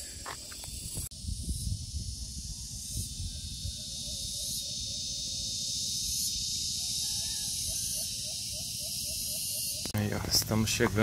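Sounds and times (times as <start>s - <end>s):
high-pitched insect chorus: 0.0s - 11.0s
wind rumbling on microphone: 0.6s - 4.4s.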